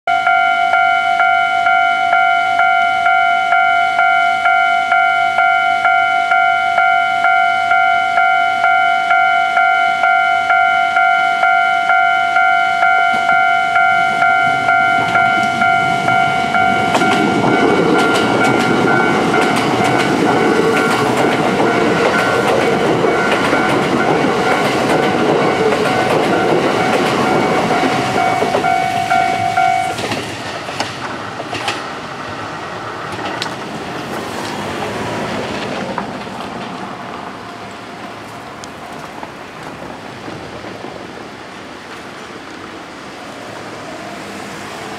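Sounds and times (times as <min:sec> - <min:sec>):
level crossing warning bell: 0:00.1 - 0:30.2
train rumble: 0:00.2 - 0:44.9
train wheels clicking over rail joints: 0:11.5 - 0:42.8.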